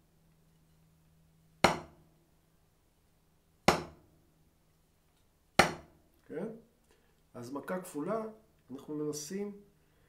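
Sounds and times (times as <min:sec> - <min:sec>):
drumstick tapping practice pad: 0:01.6 - 0:02.0, 0:03.6 - 0:04.1, 0:05.6 - 0:06.0.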